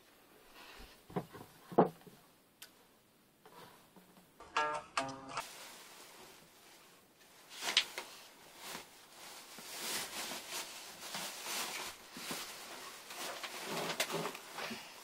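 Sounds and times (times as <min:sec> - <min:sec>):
fabric and cushions rustling: 0:05.4 - 0:15.0.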